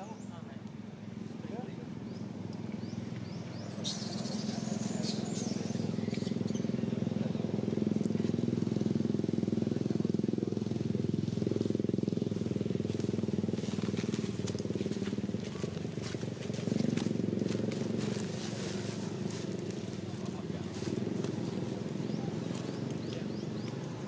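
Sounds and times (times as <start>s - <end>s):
small engine running: 0.0s - 24.0s.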